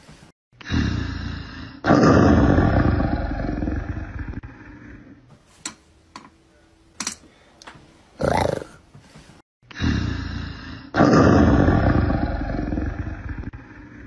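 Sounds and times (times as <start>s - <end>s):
big cat roar: 8.2s - 8.8s.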